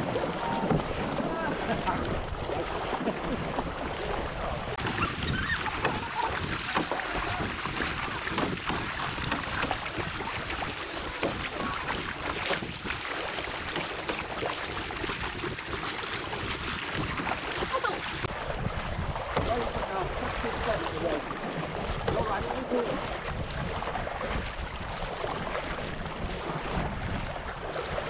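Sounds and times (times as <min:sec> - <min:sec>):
kayak paddles splashing: 0:00.0 - 0:28.0
water rushing along hull: 0:00.0 - 0:28.0.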